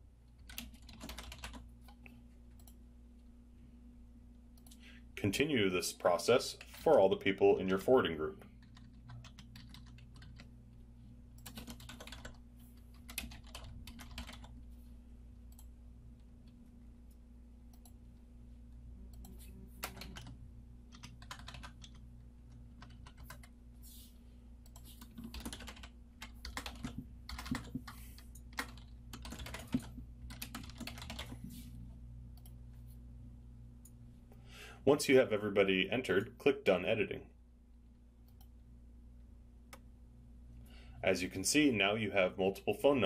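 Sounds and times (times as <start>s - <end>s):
low electrical hum: 0.0s - 43.0s
typing on computer keyboard: 0.3s - 2.8s, 8.6s - 10.5s, 11.4s - 14.6s, 19.2s - 22.0s, 22.8s - 23.5s, 24.7s - 31.4s.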